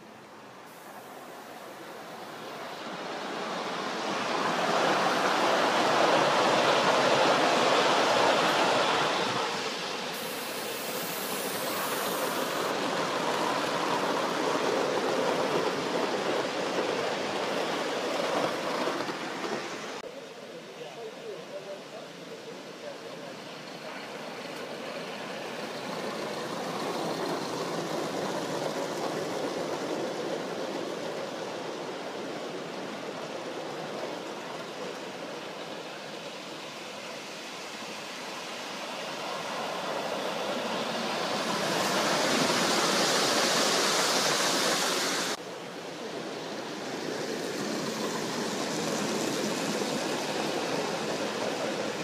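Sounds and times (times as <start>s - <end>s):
steam locomotives hissing: 0.0s - 52.0s.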